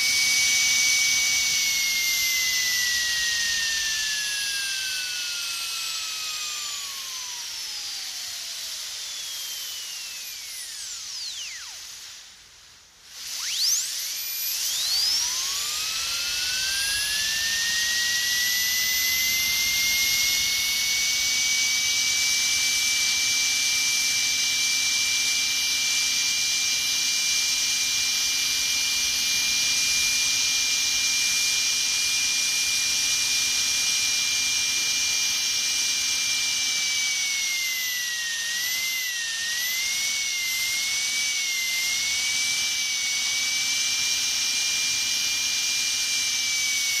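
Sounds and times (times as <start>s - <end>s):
dentist's drill whining: 0.0s - 47.0s.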